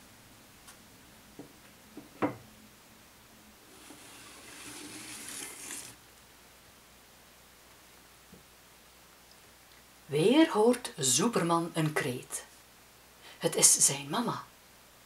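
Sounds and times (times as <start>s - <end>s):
soft knocks: 1.4s - 2.4s
paper card scraping on wood: 3.7s - 6.0s.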